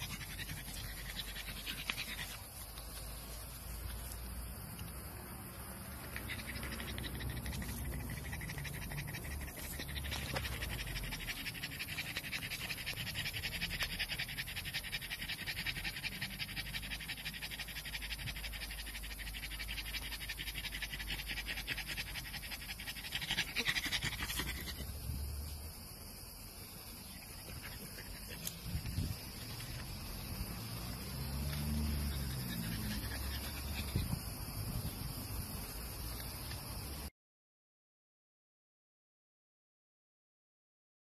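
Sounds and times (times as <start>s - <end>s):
dog panting fast: 0.0s - 3.0s, 5.9s - 25.0s, 31.6s - 34.3s.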